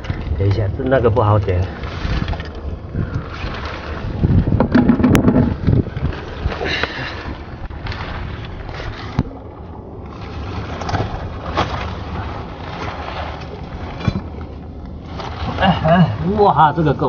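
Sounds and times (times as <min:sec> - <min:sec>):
wind buffeting microphone: 0:00.0 - 0:17.0
handling knocks: 0:04.5 - 0:05.7.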